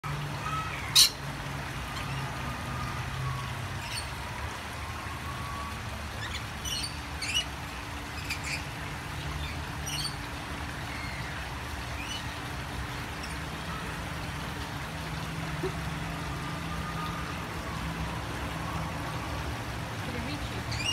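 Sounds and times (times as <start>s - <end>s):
lorikeet squawk: 0.4s - 1.2s.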